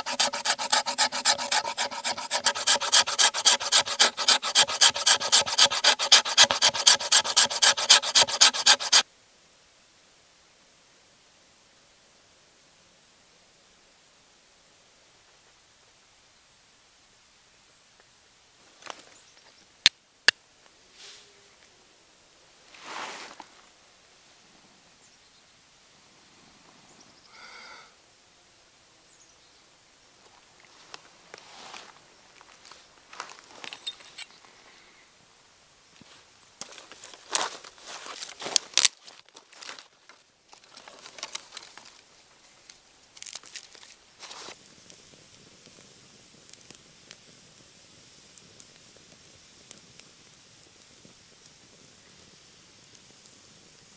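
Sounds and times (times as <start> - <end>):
kindling fire crackling: 0.0 - 9.0, 36.0 - 53.9
striker scraping flint: 0.0 - 9.0, 33.2 - 34.4, 36.6 - 42.1, 42.7 - 45.0
twigs snapping: 36.6 - 42.0, 42.7 - 44.0.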